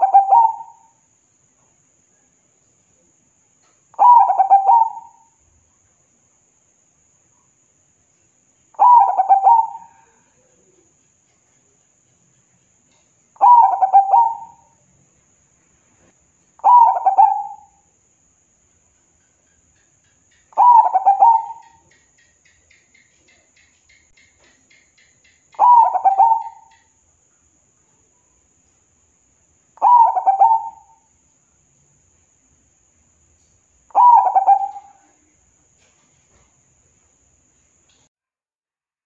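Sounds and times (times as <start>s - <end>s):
dove stuttering coos: 4.0s - 5.1s, 8.8s - 10.0s, 13.4s - 14.6s, 16.6s - 17.7s, 20.6s - 21.8s, 25.6s - 26.7s, 29.8s - 30.9s, 34.0s - 35.1s.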